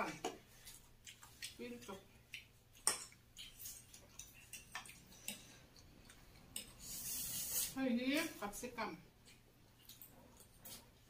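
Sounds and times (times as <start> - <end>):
noodle slurp: 6.8 - 7.8.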